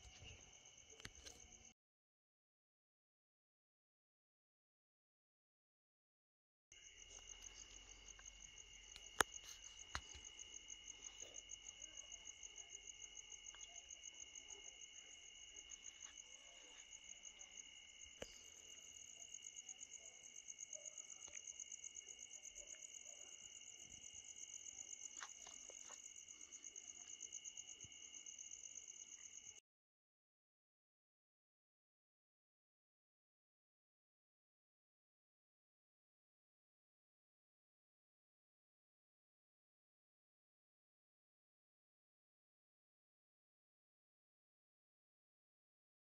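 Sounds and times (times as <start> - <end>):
crickets chirping: 0.0 - 1.7, 6.7 - 29.6.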